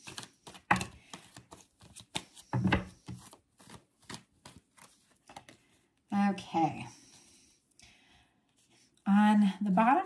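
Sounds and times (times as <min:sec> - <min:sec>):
cards slapping and clicking: 0:00.0 - 0:05.6.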